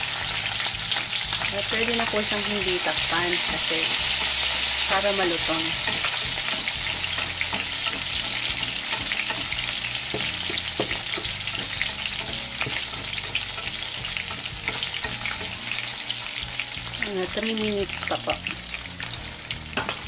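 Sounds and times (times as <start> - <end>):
fish sizzling in hot oil: 0.0 - 20.0
spatula pressing fish: 5.8 - 15.8.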